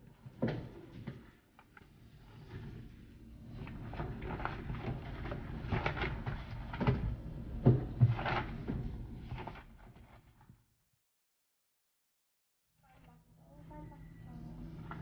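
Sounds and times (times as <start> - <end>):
paper pages rustling: 3.7 - 6.9, 8.1 - 10.3.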